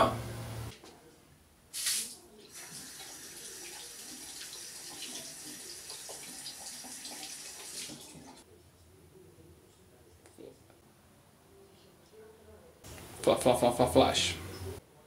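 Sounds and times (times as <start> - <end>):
tap water running into sink: 1.8 - 8.4.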